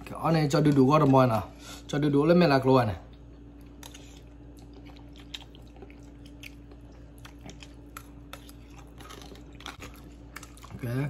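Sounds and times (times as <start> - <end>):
faint hum: 0.0 - 11.0
man chewing noodles: 3.1 - 11.0.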